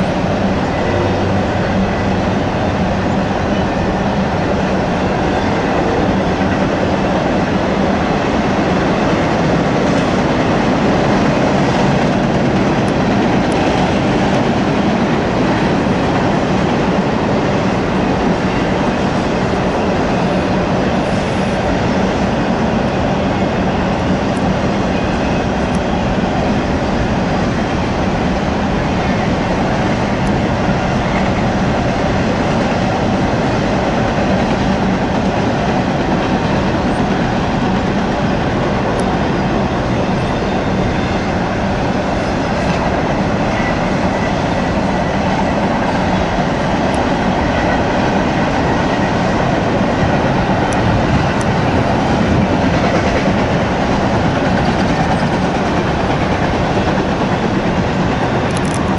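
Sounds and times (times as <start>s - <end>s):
freight train wheels on rails: 0.0s - 58.9s.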